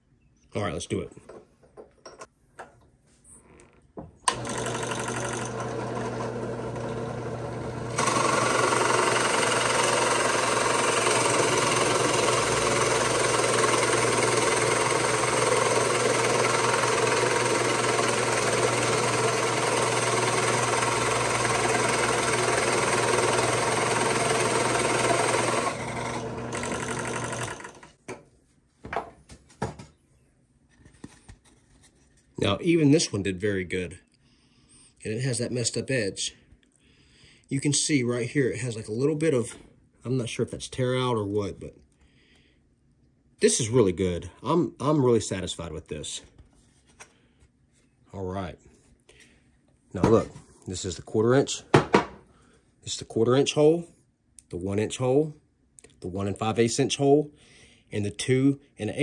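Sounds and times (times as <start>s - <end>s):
drill bit boring into wood: 4.3s - 27.9s
drill press motor humming: 4.3s - 27.9s.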